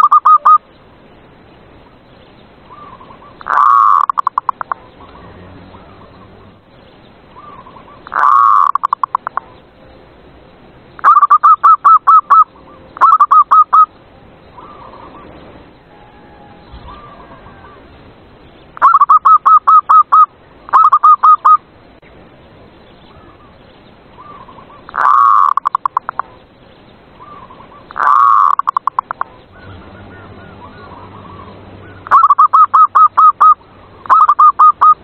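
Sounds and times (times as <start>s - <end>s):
doves cooing in staccato bursts: 2.7s - 6.6s, 7.4s - 9.6s, 24.2s - 26.4s, 27.2s - 35.0s
faint dove coos: 15.9s - 17.9s.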